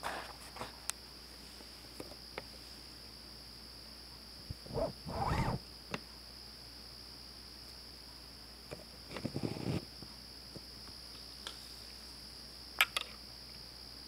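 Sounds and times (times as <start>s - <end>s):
insect chorus: 0.0s - 14.0s
scratchy scrabbling: 4.7s - 5.6s.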